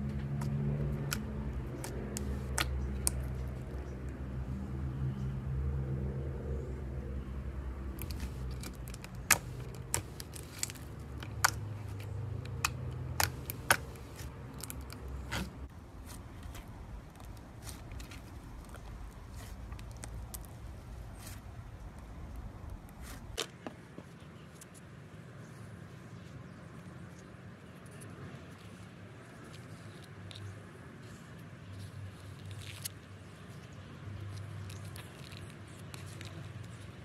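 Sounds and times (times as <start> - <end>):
low steady rumble: 0.0 - 23.4.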